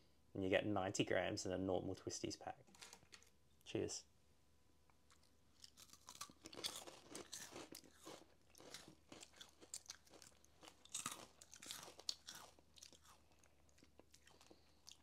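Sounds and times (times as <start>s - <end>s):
crunching and chewing snack: 5.0s - 15.0s.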